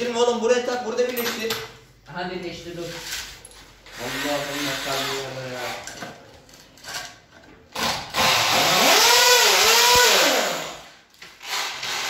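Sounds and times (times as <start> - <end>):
power tool motor running: 8.1 - 12.0.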